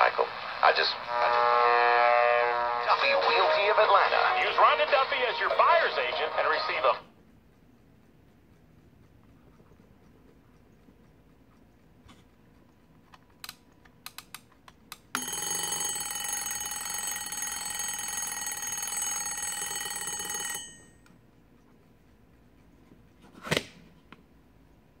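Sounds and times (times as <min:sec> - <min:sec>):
alarm clock steady tone: 0:01.0 - 0:13.0, 0:15.1 - 0:23.0
clock control clicks: 0:06.4 - 0:18.9.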